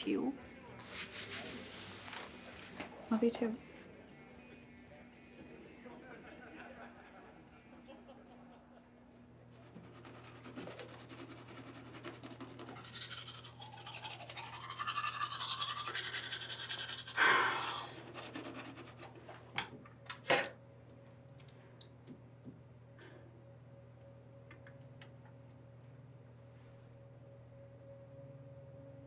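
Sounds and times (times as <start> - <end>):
steady low hum: 0.0 - 29.0
toothbrush scrubbing teeth: 9.6 - 19.2.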